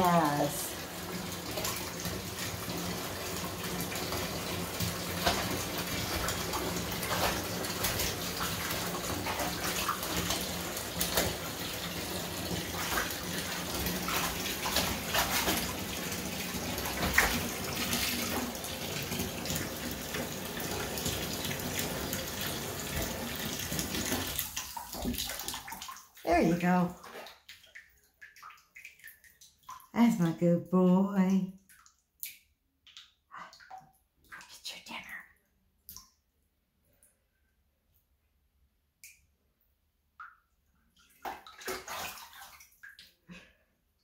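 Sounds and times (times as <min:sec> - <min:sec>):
bath faucet running into tub: 0:00.0 - 0:30.4, 0:41.0 - 0:43.4
water splashes and knocks: 0:00.0 - 0:30.4, 0:40.2 - 0:43.3.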